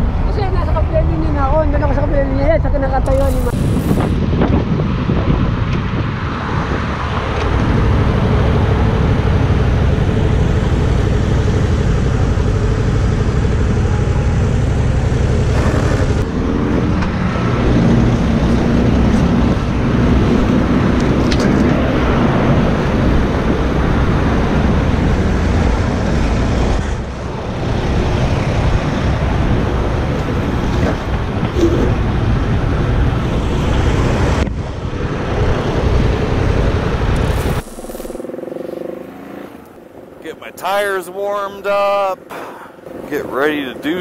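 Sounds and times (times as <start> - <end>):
road noise: 0.0 - 44.0
motorcycle engine running: 6.8 - 40.6, 41.2 - 44.0.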